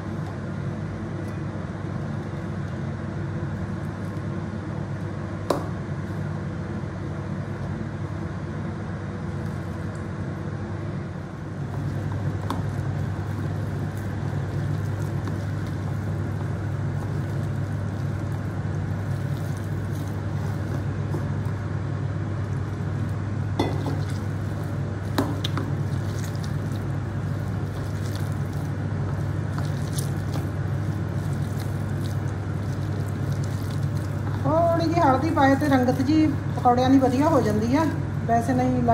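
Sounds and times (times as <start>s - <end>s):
hands squishing batter in a bowl: 11.5s - 21.6s, 22.3s - 38.0s.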